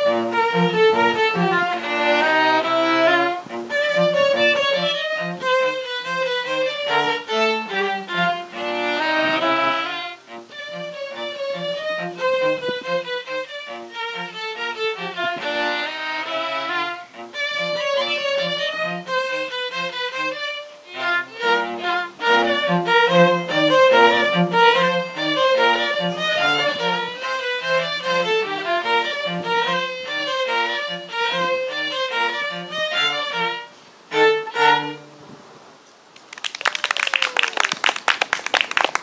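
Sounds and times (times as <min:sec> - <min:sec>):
string group playing a quick tune: 0:00.0 - 0:35.2
audience clapping: 0:36.2 - 0:39.0.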